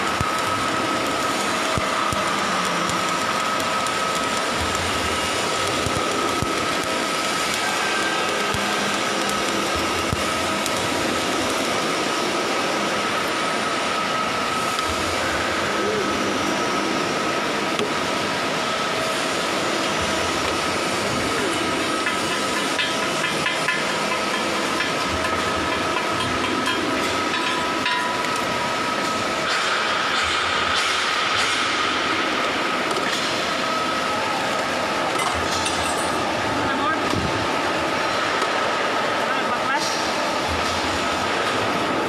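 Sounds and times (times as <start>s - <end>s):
machinery drone with high whine: 0.0s - 42.0s.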